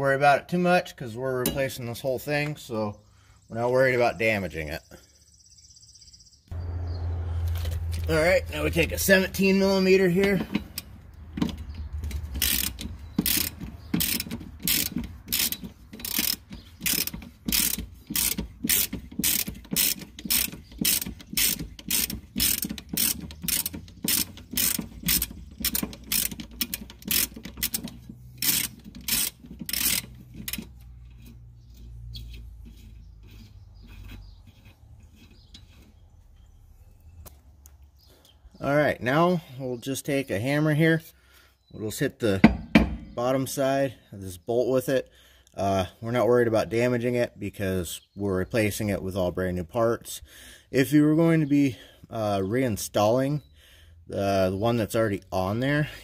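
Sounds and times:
ratchet wrench clicking: 10.6 - 35.8.

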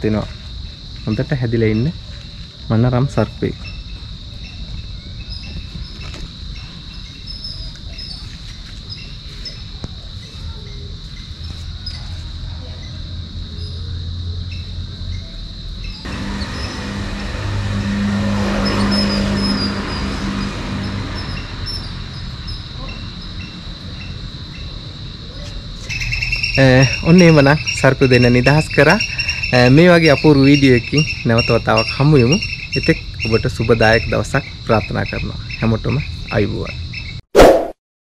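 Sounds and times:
insect trill: 0.0 - 37.2
motor vehicle passing: 16.0 - 24.8
bird chirps: 25.9 - 27.9.

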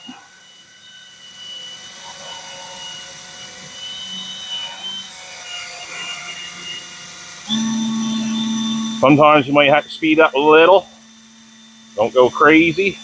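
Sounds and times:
cordless drill whining: 0.0 - 13.0.

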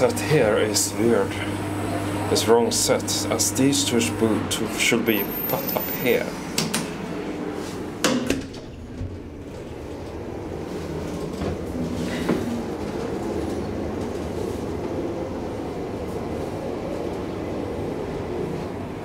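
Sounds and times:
elevator clunks: 8.0 - 14.2
elevator car rumbling: 8.3 - 19.0.

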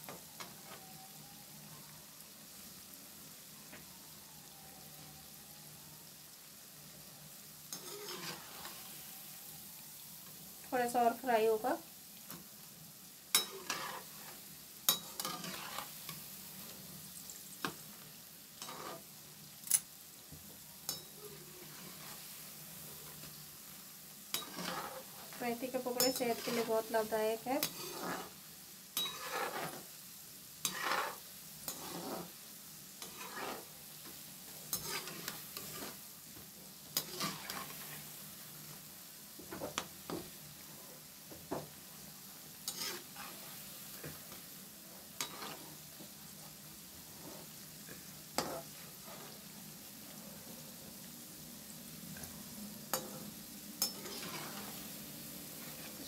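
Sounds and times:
food sizzling in oil: 0.0 - 56.0
spatula scraping and clinking pan: 7.7 - 8.8, 13.3 - 16.2, 18.6 - 19.9, 20.8 - 22.3, 24.3 - 26.9, 27.6 - 28.4, 29.0 - 29.9, 30.6 - 32.3, 33.0 - 33.7, 34.7 - 36.0, 36.9 - 38.1, 42.6 - 44.4, 45.2 - 45.8, 48.4 - 49.4, 52.2 - 54.9.

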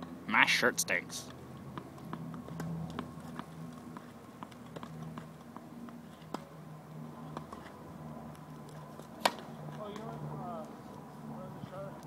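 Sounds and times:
tennis ball bouncing on hard court: 1.3 - 6.6, 7.2 - 10.2.

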